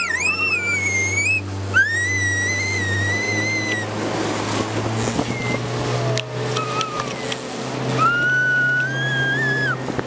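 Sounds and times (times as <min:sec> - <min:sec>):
child squealing: 0:00.0 - 0:03.9, 0:06.6 - 0:07.3, 0:08.0 - 0:09.8
speedboat engine hum: 0:00.0 - 0:10.0.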